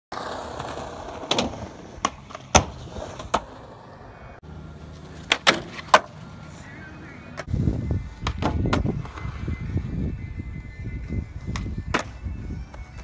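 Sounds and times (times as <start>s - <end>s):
skateboard wheels rolling on concrete: 0.1s - 13.0s
skateboard clacking on ground: 4.9s - 6.2s, 11.4s - 13.0s.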